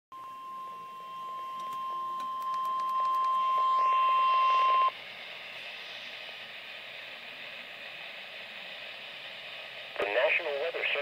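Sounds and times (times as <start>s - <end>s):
radio warning alarm tone: 0.1s - 5.0s
radio static hiss: 3.4s - 11.0s.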